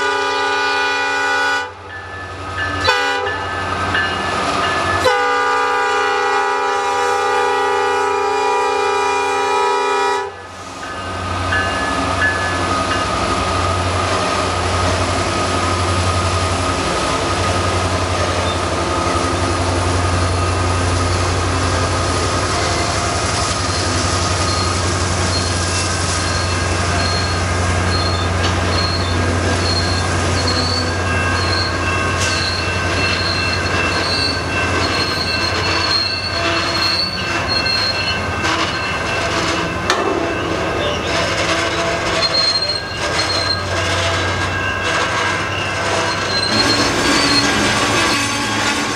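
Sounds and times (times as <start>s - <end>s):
freight train rumbling: 0.0s - 48.9s
wheel squeal: 23.6s - 39.0s, 40.8s - 43.8s, 45.3s - 48.9s.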